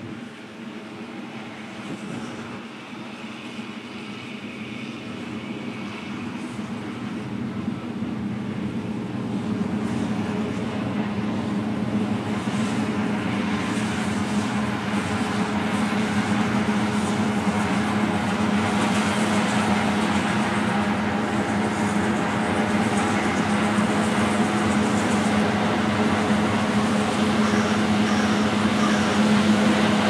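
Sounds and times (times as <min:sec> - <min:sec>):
combine harvester running: 0:00.0 - 0:30.0.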